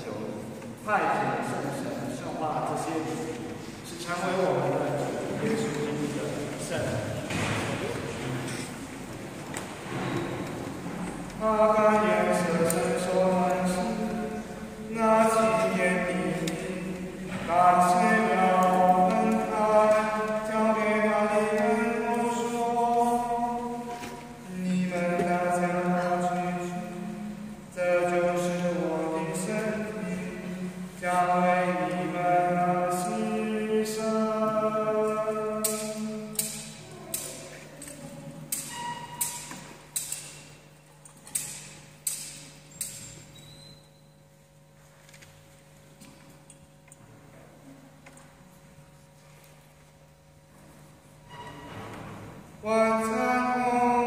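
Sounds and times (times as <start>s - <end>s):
slow sung liturgical chant: 9.6s - 40.2s, 51.1s - 54.0s.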